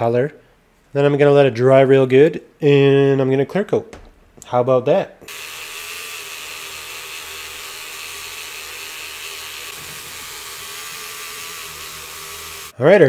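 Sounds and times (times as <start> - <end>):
rotary tool hissing: 5.3 - 12.8.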